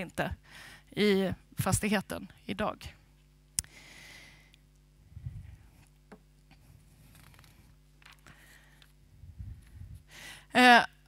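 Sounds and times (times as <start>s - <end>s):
faint steady hum: 0.0s - 11.0s
paper rustling: 6.9s - 8.4s.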